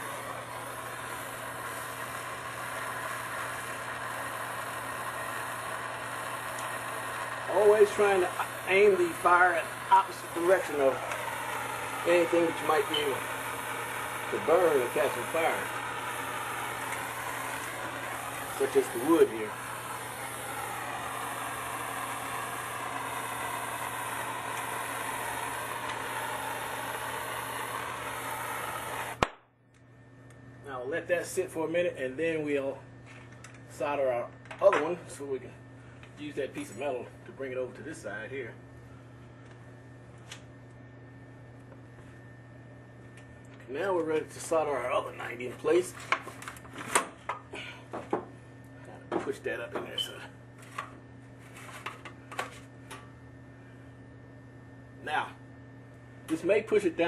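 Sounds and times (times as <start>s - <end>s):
gas torch hissing roar: 0.0s - 29.4s, 43.7s - 48.2s.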